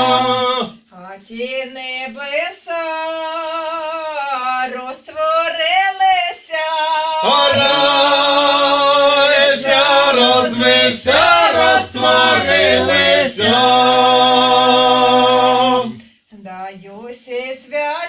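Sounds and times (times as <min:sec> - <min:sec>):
women's voices singing: 0:00.0 - 0:00.7, 0:01.3 - 0:18.0
men's voices singing in harmony: 0:00.0 - 0:00.8, 0:07.2 - 0:16.0.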